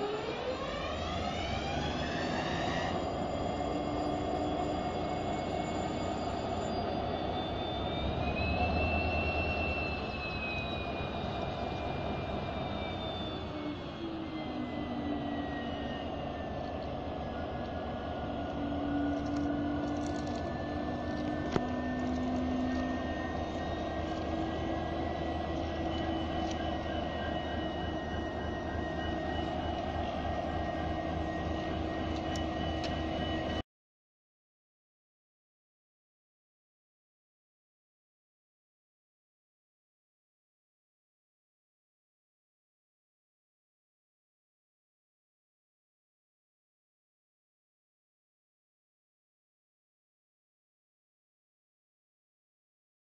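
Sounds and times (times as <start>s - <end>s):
diesel locomotive engine rumble: 0.0s - 33.6s.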